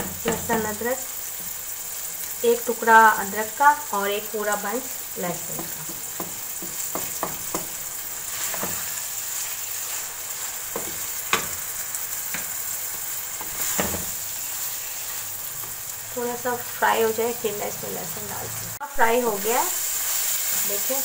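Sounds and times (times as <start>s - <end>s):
meat sizzling in oil: 0.0s - 21.0s
wooden spatula scraping a pan: 5.6s - 15.9s.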